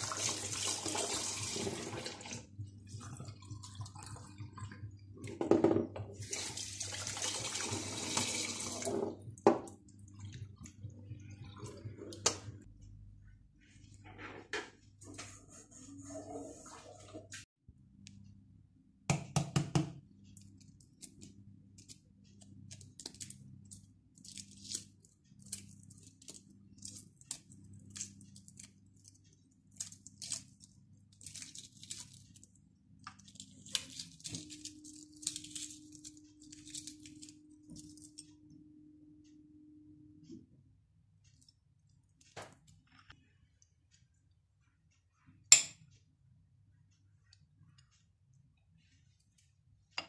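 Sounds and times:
egg shell peeling crackles: 0:20.4 - 0:32.5, 0:33.1 - 0:38.2.

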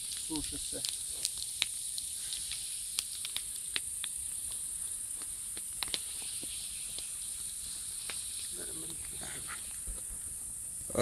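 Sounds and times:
sharp clicks and crackles: 0:00.0 - 0:04.6, 0:05.2 - 0:07.1
crickets trilling: 0:00.0 - 0:11.0.

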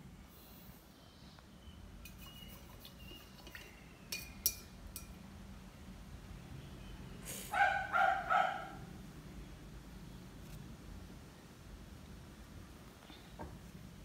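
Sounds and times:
small dog barking: 0:07.5 - 0:08.9.

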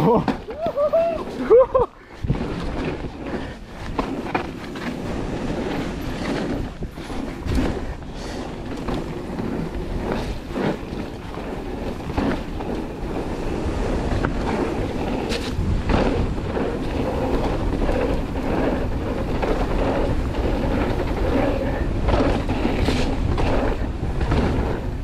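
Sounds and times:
bike knocking and rattling: 0:00.0 - 0:25.0
tyres rolling on dirt: 0:00.0 - 0:25.0
wind rushing over microphone: 0:00.4 - 0:25.0.

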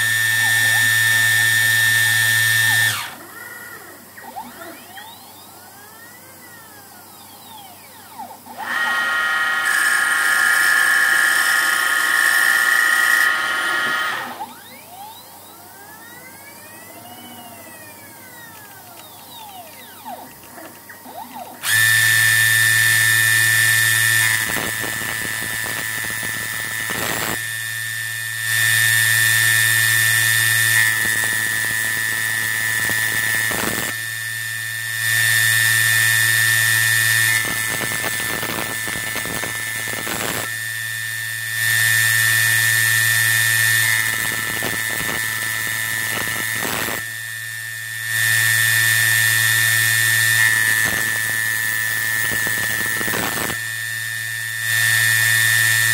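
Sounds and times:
machine motor sweeping: 0:00.0 - 0:23.6
saw whining through brass: 0:07.2 - 0:15.5.

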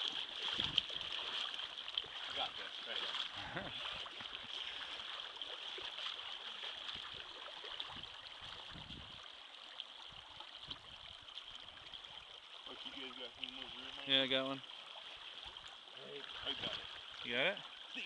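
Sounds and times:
shallow river rushing: 0:00.0 - 0:18.0.

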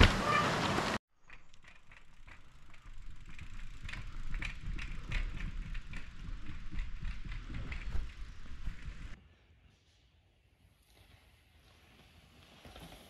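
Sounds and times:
bike tyres rumbling on trail: 0:00.0 - 0:09.2, 0:10.8 - 0:13.0
bike freehub ratchet clicking: 0:01.2 - 0:09.1.

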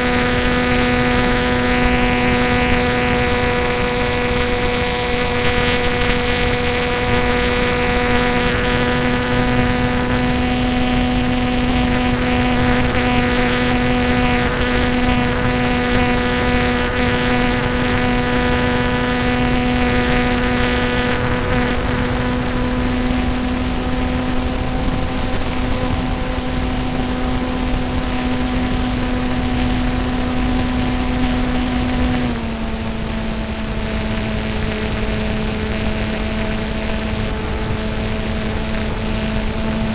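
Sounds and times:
propeller engine drone: 0:00.0 - 0:39.9.

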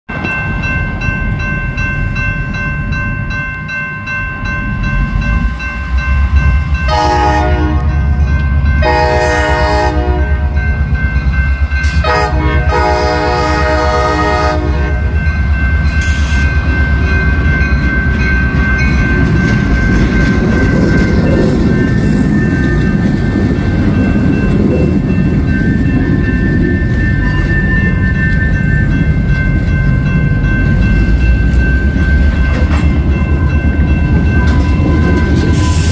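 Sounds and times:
crossing bell ringing: 0:00.1 - 0:35.9
train rolling past rumble: 0:00.1 - 0:35.9
locomotive horn: 0:06.9 - 0:08.2, 0:08.8 - 0:10.7, 0:11.8 - 0:15.2.

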